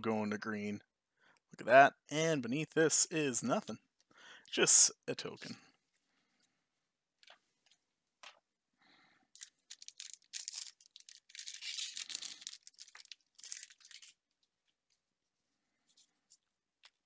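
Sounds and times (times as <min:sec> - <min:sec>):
foil wrapper tearing and crinkling: 0:09.3 - 0:14.3.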